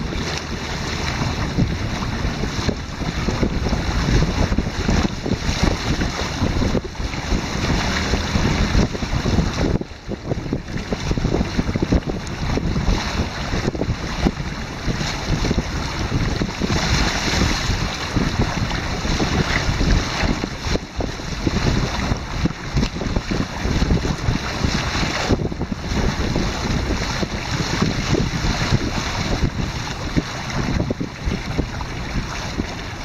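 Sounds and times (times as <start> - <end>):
water rushing along a hull: 0.0 - 33.0
wind buffeting microphone: 0.0 - 33.0.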